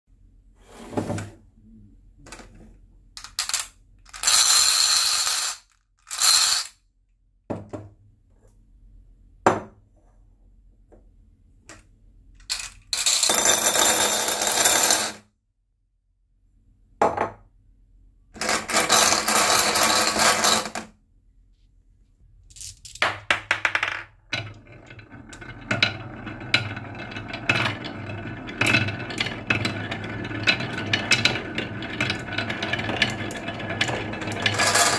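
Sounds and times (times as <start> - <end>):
glass marbles clattering into bowl: 3.2 - 6.7, 25.3 - 34.9
marbles rolling on wooden track: 3.2 - 6.7, 12.4 - 15.2, 18.4 - 20.9, 22.5 - 34.9.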